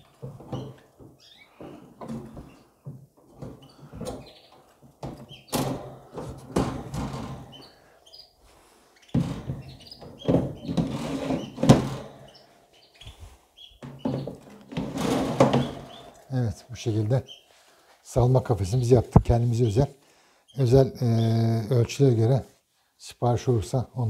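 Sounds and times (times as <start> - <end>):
metal grids scraping and rattling: 0.0 - 7.9, 9.1 - 12.6, 13.2 - 16.9
sharp knocks: 5.0 - 7.7.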